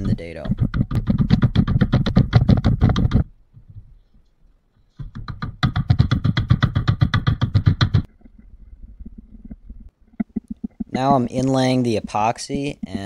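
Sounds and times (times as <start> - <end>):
wooden mallet knocking wood: 0.0 - 3.3, 5.0 - 8.1.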